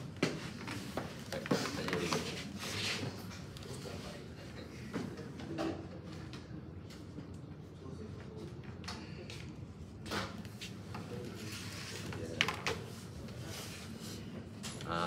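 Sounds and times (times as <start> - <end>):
room noise: 0.0 - 15.0.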